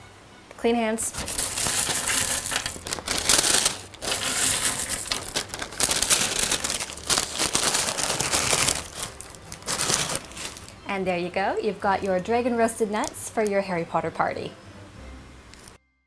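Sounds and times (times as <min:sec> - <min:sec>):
nuts dropping into paper bag: 0:01.1 - 0:10.8
paper bag crinkling: 0:01.1 - 0:10.9.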